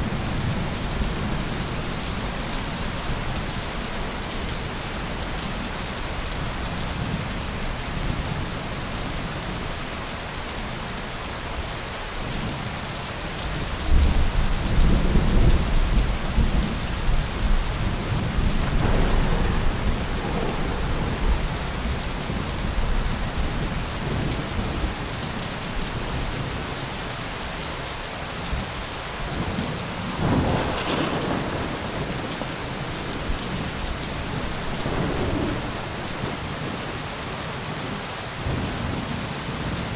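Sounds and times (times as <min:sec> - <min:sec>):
steady rain: 0:00.0 - 0:39.9
sharp crack of thunder: 0:13.9 - 0:22.8, 0:29.4 - 0:36.4
rolling thunder: 0:13.9 - 0:25.0, 0:29.2 - 0:36.8.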